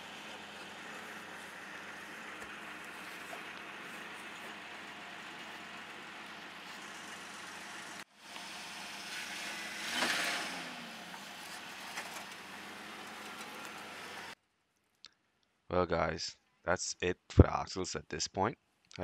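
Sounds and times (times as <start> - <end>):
pickup truck engine humming: 0.0 - 14.4.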